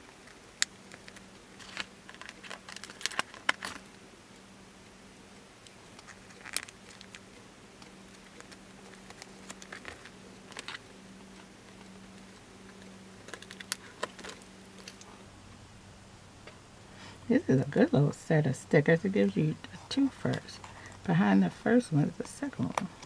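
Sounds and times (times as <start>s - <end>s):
faint low hum: 0.0s - 23.0s
stickers clicking and tapping on paper: 7.8s - 10.8s.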